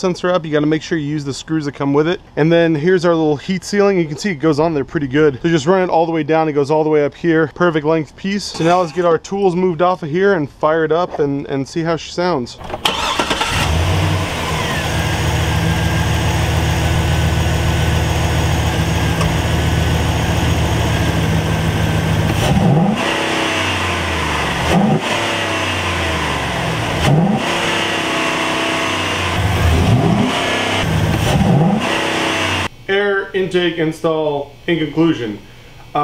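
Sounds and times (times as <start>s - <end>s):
truck engine idling and revving: 12.8s - 32.7s.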